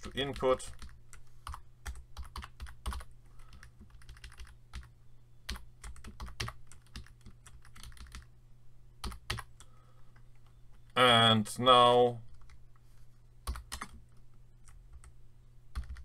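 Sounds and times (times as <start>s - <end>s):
faint low hum: 0.0s - 16.0s
keyboard typing: 0.3s - 4.9s, 5.5s - 8.3s, 9.0s - 11.0s, 13.4s - 15.1s, 15.8s - 16.0s.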